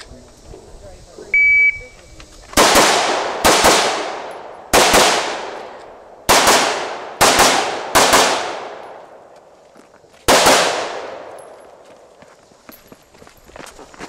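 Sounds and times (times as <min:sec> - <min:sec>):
rifle shots echoing: 0:02.6 - 0:09.3, 0:10.3 - 0:11.8.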